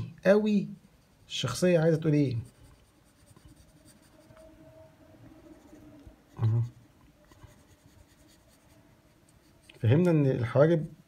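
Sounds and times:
pencil scratching on paper: 1.0s - 4.7s, 5.4s - 10.2s.

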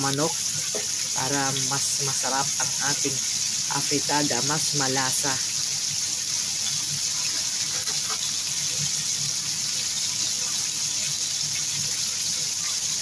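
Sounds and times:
chicken sizzling in pan: 0.0s - 13.0s.

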